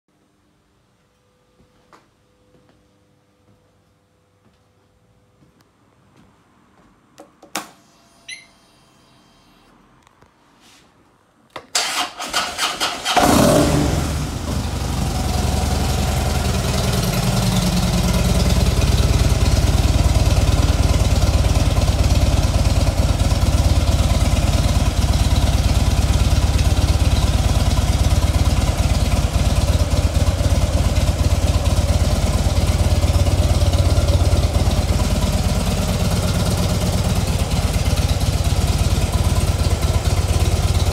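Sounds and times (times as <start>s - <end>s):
motorcycle engine idling: 13.2s - 40.9s.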